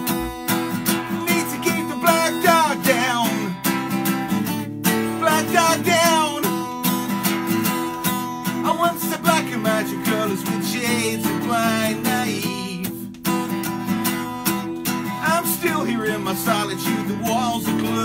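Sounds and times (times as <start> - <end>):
acoustic guitar strummed: 0.0 - 18.0
man singing: 0.8 - 3.7, 4.9 - 6.9, 8.5 - 13.1, 15.0 - 18.0.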